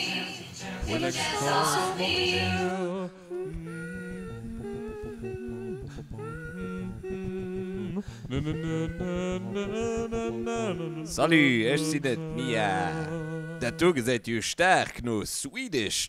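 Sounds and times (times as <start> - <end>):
person humming a tune: 2.3 - 14.0.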